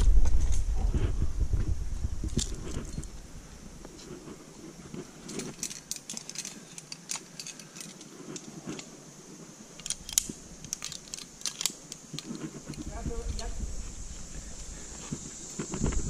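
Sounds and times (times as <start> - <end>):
metal carabiners jingling and clinking: 5.1 - 8.9, 9.8 - 13.5.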